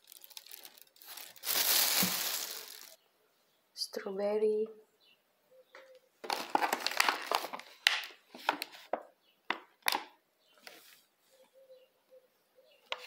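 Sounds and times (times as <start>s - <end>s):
plastic punnet crinkling: 0.0s - 3.0s, 6.2s - 9.0s.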